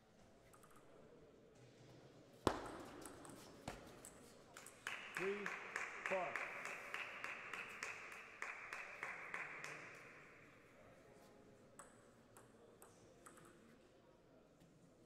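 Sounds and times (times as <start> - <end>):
table tennis ball clicking: 13.3 - 13.6.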